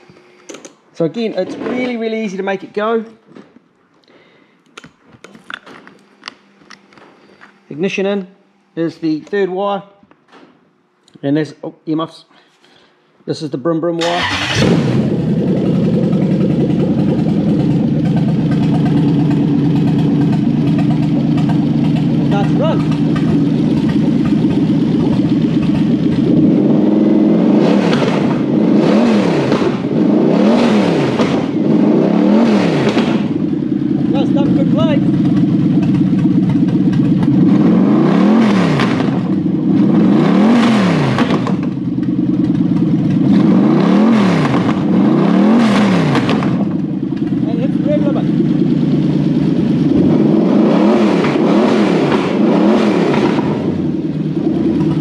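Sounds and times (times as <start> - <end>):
engine idling: 14.0 - 28.6, 31.3 - 43.7, 44.4 - 51.6, 52.2 - 55.0.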